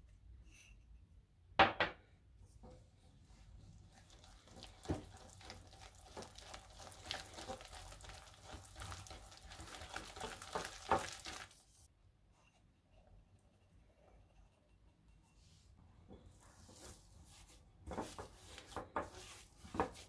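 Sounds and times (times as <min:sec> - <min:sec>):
wire whisk stirring batter: 0:02.6 - 0:11.9.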